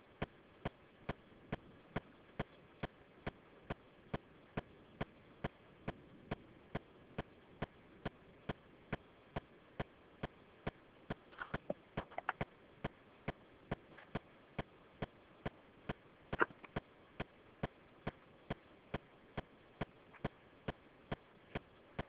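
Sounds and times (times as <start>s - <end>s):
steady ticking: 0.0s - 22.0s
irregular extra clicks: 0.1s - 22.0s.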